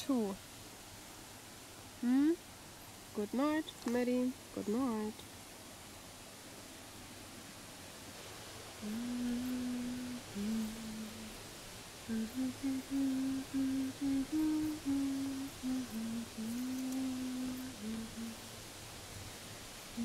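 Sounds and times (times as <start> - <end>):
woman humming a slow tune: 2.0 - 2.4, 8.7 - 18.7.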